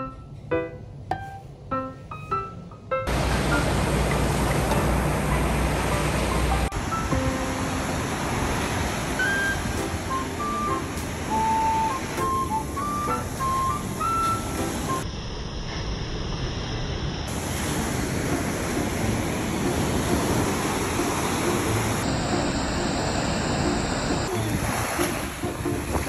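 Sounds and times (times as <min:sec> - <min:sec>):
surf washing up beach: 0:03.1 - 0:15.0, 0:17.3 - 0:26.0
wind on microphone: 0:17.3 - 0:26.0.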